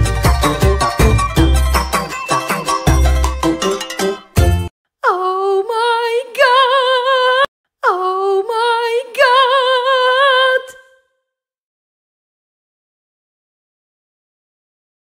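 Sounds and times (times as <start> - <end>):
person singing unaccompanied: 5.0 - 11.0.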